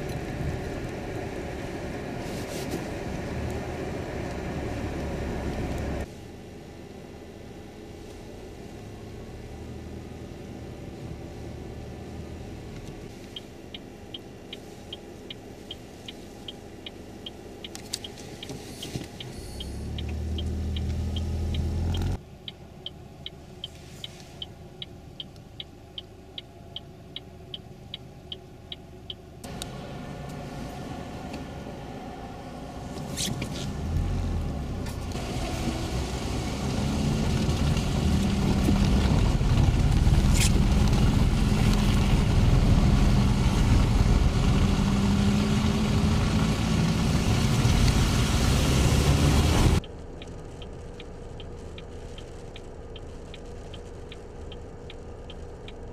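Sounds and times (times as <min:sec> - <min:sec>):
vehicle and road rumble: 0:00.0 - 0:55.9
wind noise: 0:36.8 - 0:45.4
steady clicking: 0:49.8 - 0:55.9.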